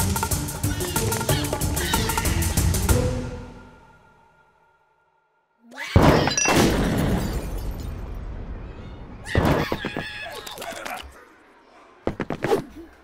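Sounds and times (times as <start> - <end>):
breaking glass: 6.0 - 8.1.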